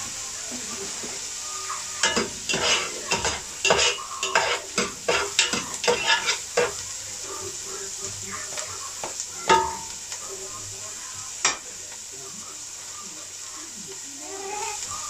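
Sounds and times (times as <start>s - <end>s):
food sizzling in oil: 0.0s - 15.0s
spatula stirring and scraping: 2.0s - 6.9s.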